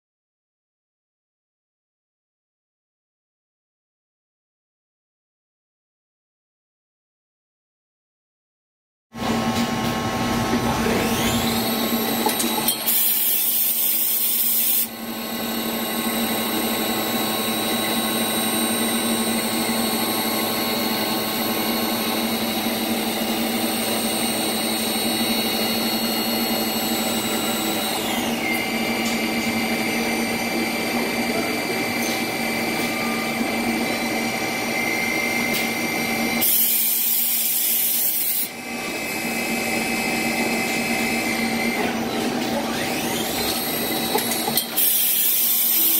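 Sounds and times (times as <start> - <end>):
machine hum: 9.2 - 36.4
high spindle whines: 9.3 - 45.9.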